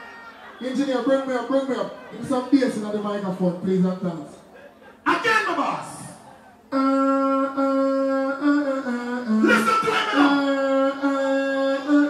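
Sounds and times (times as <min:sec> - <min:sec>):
man humming into microphone: 0:06.7 - 0:12.0.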